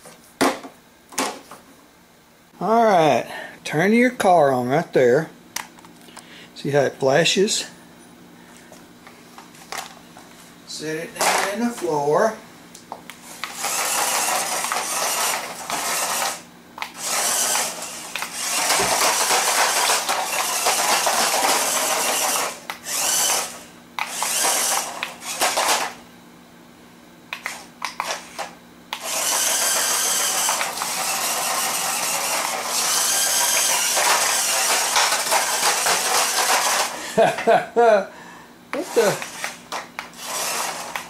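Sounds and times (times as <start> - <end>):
toy car motors whirring: 13.3 - 26.0, 27.4 - 37.0, 38.8 - 41.0.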